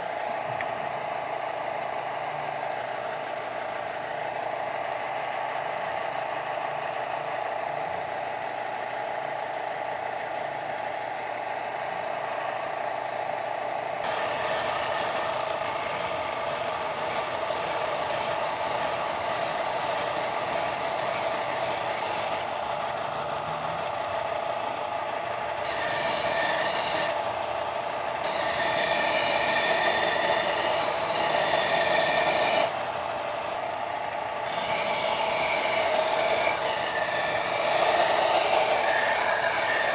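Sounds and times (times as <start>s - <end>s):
small machine droning: 0.0s - 39.9s
wood scraping abrasively: 14.0s - 22.5s, 25.6s - 27.2s, 28.2s - 32.8s.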